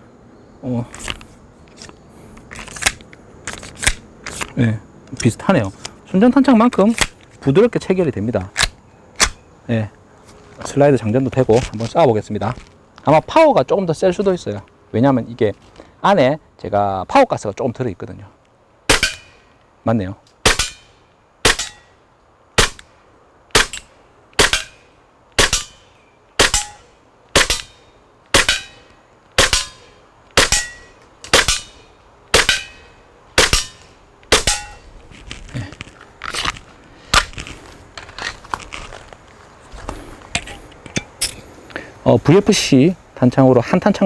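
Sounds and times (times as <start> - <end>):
airsoft pistol shots: 18.9 - 19.3, 20.4 - 20.8, 21.4 - 21.8, 22.6 - 22.8, 23.5 - 23.8, 24.4 - 24.8, 25.4 - 25.8, 26.4 - 26.8, 27.4 - 27.7, 28.3 - 28.7, 29.4 - 29.8, 30.4 - 31.7, 32.3 - 32.8, 33.4 - 34.8.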